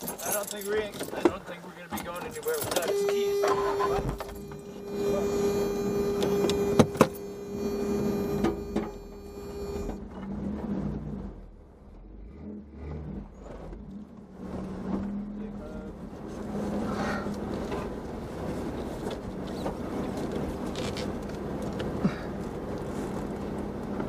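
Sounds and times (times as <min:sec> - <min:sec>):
vehicle engine running: 0:00.8 - 0:24.0
small electric motor whine: 0:02.9 - 0:10.0.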